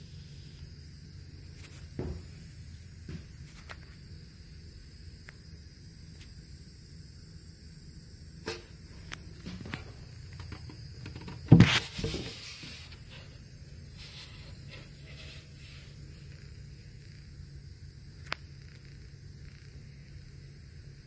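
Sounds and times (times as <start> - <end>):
steady hiss: 0.0 - 21.0
loud thump with rattle: 1.9 - 2.4, 8.4 - 8.8, 11.0 - 12.4.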